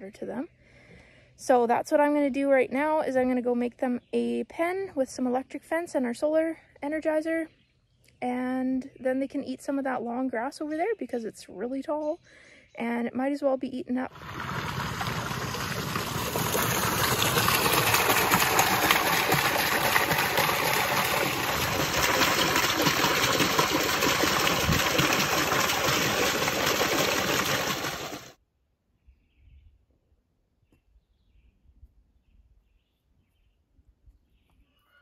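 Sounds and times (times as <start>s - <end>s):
water gushing from a hose: 14.1s - 28.4s.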